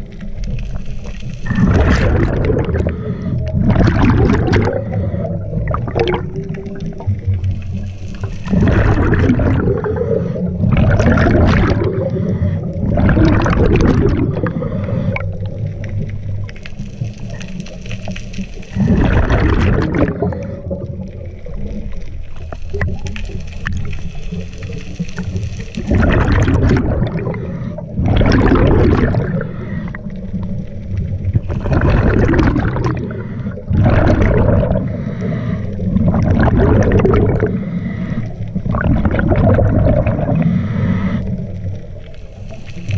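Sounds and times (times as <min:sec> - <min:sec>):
exhaled bubbles hissing and gurgling: 0:00.0 - 0:42.9
diver breathing through regulator: 0:01.5 - 0:03.8, 0:04.4 - 0:05.8, 0:08.4 - 0:11.1, 0:11.7 - 0:15.7, 0:27.1 - 0:28.3, 0:29.1 - 0:30.6, 0:31.5 - 0:38.8, 0:39.9 - 0:41.8.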